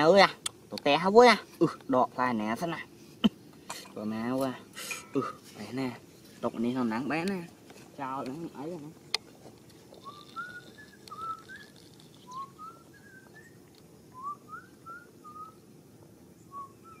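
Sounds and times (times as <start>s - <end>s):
short rising whistled notes: 10.0s - 15.6s.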